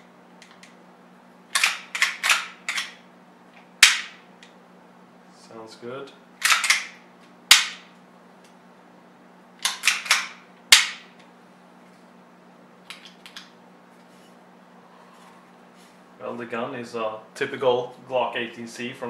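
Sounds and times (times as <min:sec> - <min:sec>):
pistol slide racking clicks: 0:01.5 - 0:03.0, 0:06.4 - 0:06.9, 0:09.6 - 0:11.0.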